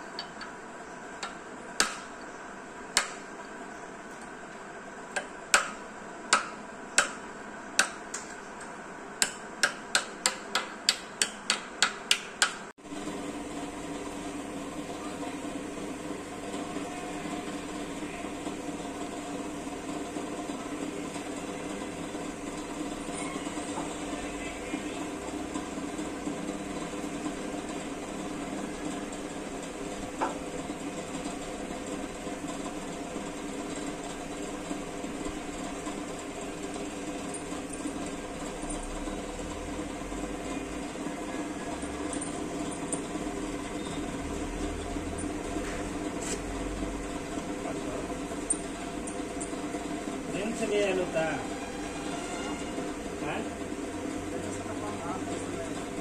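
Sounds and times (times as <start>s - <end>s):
machine hum: 12.8s - 56.0s.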